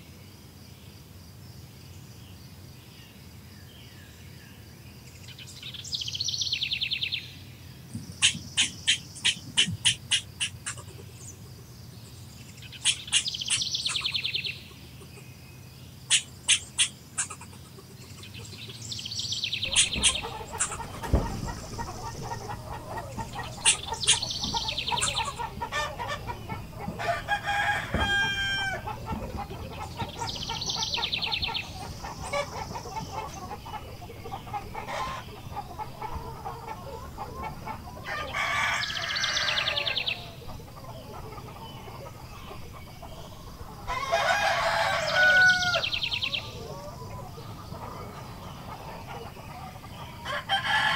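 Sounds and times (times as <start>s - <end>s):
chickens clucking: 7.8s - 50.9s
rooster crowing: 19.6s - 31.0s, 37.7s - 40.6s, 43.8s - 47.2s, 50.1s - 50.9s.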